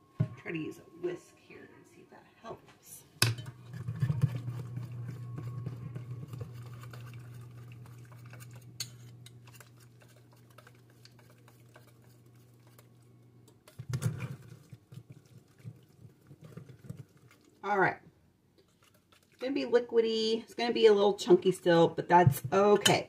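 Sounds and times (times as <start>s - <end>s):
metal bowl clattering: 3.2s - 12.8s.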